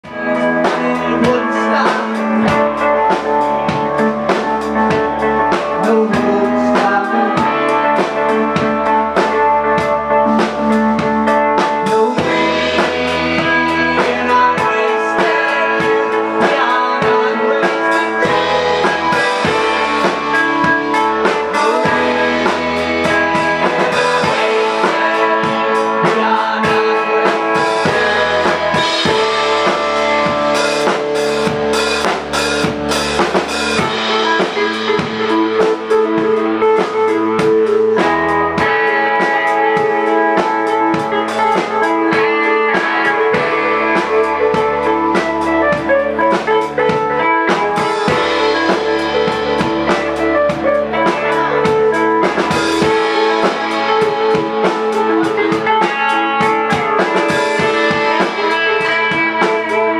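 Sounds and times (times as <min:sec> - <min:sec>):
drum kit beat: 0:00.0 - 0:59.9
electric guitar: 0:00.0 - 0:59.9.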